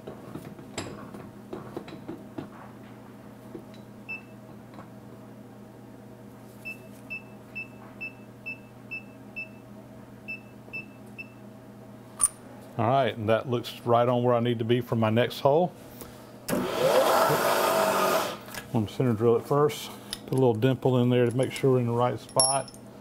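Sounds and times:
low steady hum: 18.5 - 23.0.

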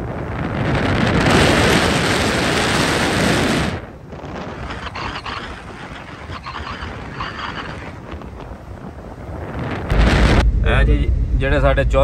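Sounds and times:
wind on microphone: 0.0 - 11.5
low rumble: 9.5 - 12.0.

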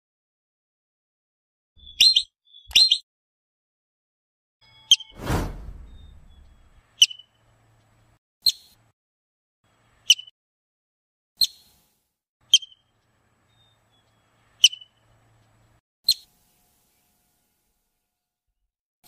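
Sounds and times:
marmot whistling calls: 1.8 - 3.0, 14.6 - 15.0.

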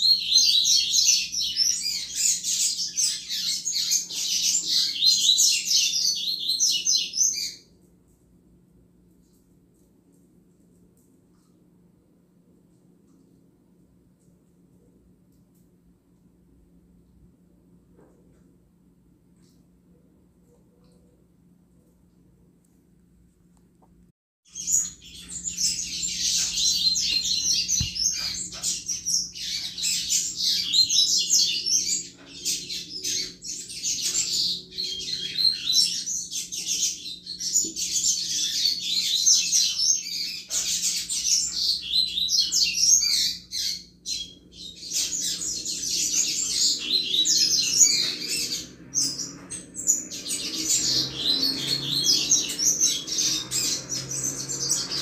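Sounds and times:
bird twittering song: 0.0 - 7.8, 24.5 - 55.0.

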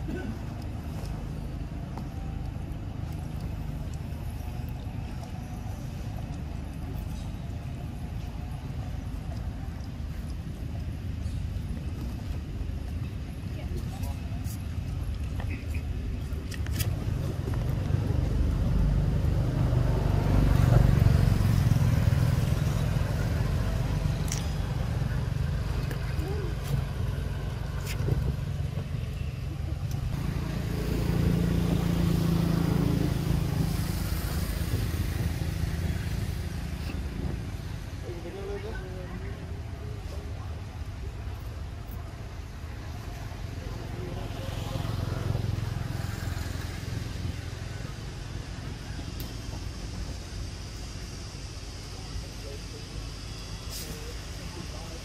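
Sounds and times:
motor engine rumbling: 0.0 - 55.0.

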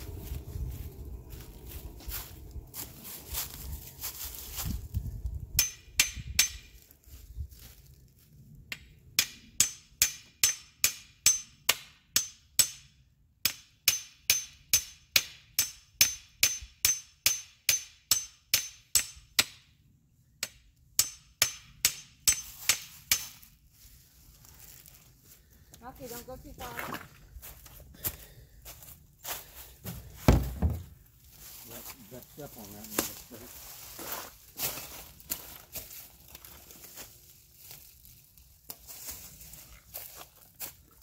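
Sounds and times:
hammer strikes with metallic ring: 5.6 - 6.7, 8.7 - 19.6, 20.4 - 23.3.

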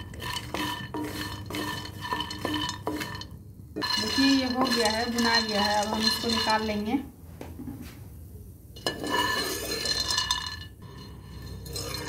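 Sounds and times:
spoon scraping a pan: 0.0 - 7.0, 8.8 - 12.0.

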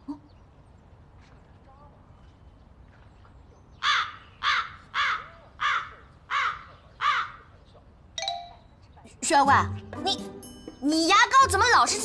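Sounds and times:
crow cawing: 3.8 - 7.5.

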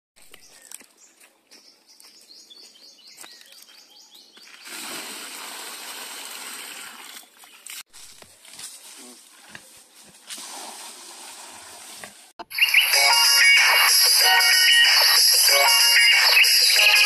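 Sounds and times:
birds chirping: 0.2 - 4.8
water gushing onto ground: 4.6 - 7.2.

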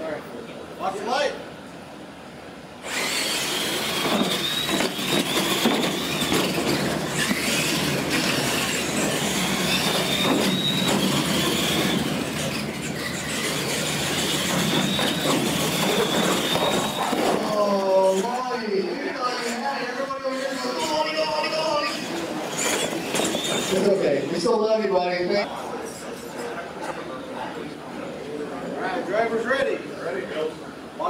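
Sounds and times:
toy truck motors whining: 2.8 - 18.4, 19.2 - 24.2
tires rushing on concrete: 2.9 - 18.3, 20.8 - 24.6.

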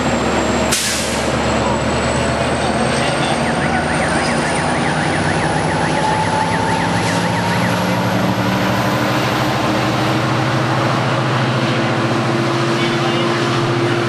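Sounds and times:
distant siren yelping: 2.5 - 10.0.

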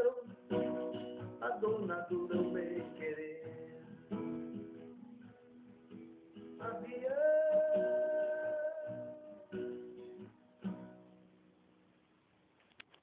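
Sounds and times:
acoustic guitar strumming: 0.0 - 11.9.

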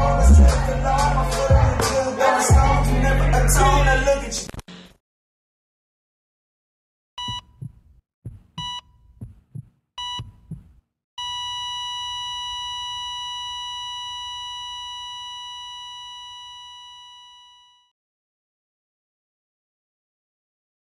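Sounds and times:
short electronic beeps: 7.2 - 7.7, 8.6 - 9.0, 10.0 - 10.5
heartbeat thumps: 7.2 - 10.8.

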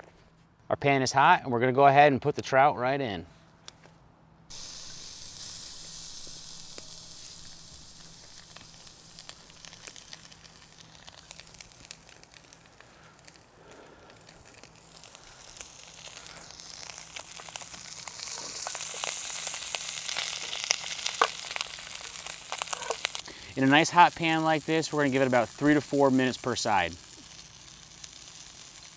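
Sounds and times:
oil popping and spitting: 4.5 - 25.6
fish sizzling in oil: 4.5 - 28.9.

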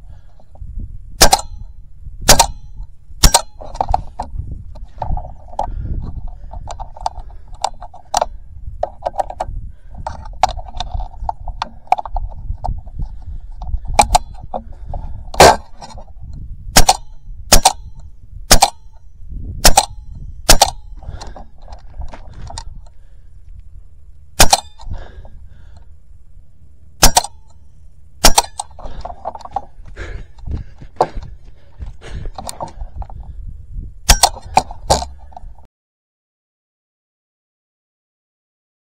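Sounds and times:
loud sharp cracks: 1.2 - 1.6, 2.3 - 3.6, 16.8 - 17.8, 18.5 - 18.8, 19.6 - 21.3, 24.4 - 25.0, 27.0 - 27.4, 28.2 - 29.0
rifle handling clicks and knocks: 1.2 - 1.7, 2.3 - 16.2, 16.8 - 19.0, 19.6 - 23.7, 24.4 - 25.1, 27.0 - 27.6, 28.2 - 33.4, 34.1 - 35.7
air rifle shots: 1.2 - 4.3, 13.8 - 16.0, 16.7 - 19.0, 19.6 - 22.7, 24.4 - 25.2, 27.0 - 27.6, 28.2 - 30.2, 34.0 - 35.3.

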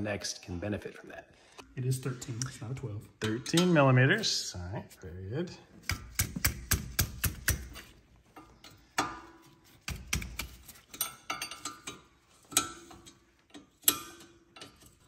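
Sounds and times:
wrench clicking on metal bolts: 9.9 - 15.0.

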